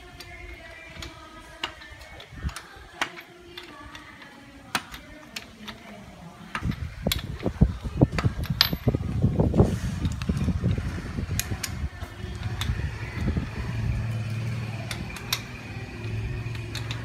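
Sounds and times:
diesel engine starting and clattering: 6.5 - 17.0.

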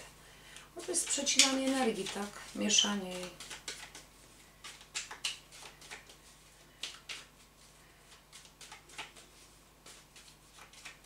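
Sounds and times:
cards snapping and sliding: 3.1 - 7.4, 8.1 - 11.0.

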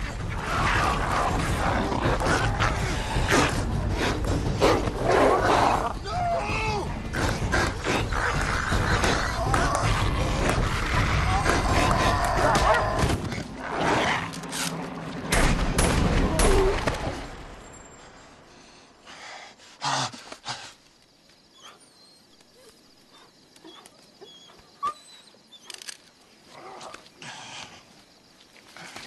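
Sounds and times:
dogs snarling and yelping: 7.0 - 14.9, 21.6 - 26.0.

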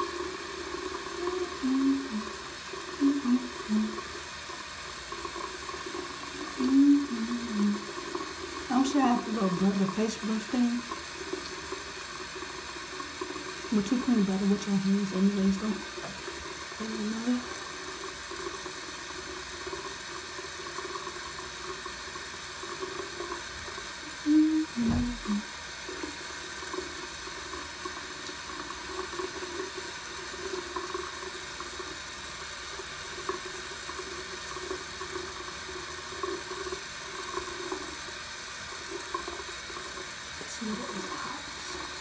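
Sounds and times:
tap water running into sink: 0.0 - 42.0
knock: 24.8 - 25.3.

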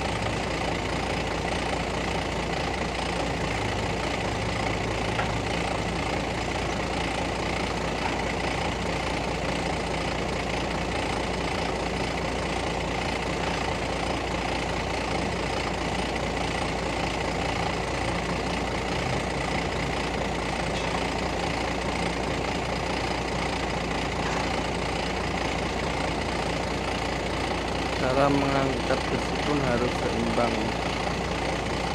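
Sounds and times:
crane engine running: 0.0 - 31.9.

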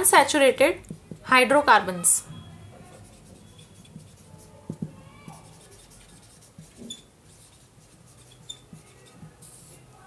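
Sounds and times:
pen scratching while writing: 3.0 - 9.8.

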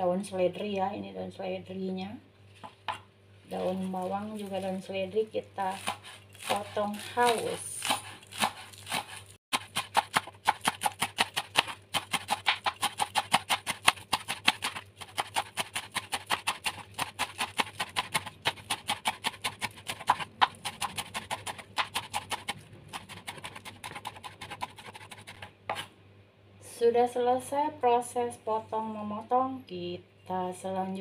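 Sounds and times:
knife chopping on wooden board: 5.7 - 25.9.

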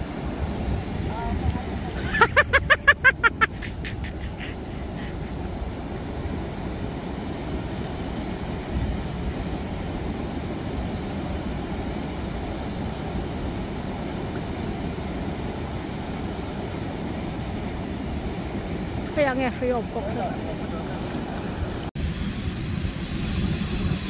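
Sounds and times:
wind buffeting microphone: 0.0 - 24.0
river water rushing: 4.2 - 21.9.

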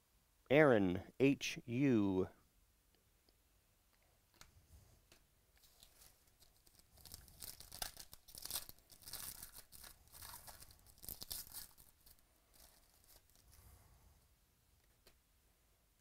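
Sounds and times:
foil wrapper tearing and crinkling: 5.6 - 13.4.

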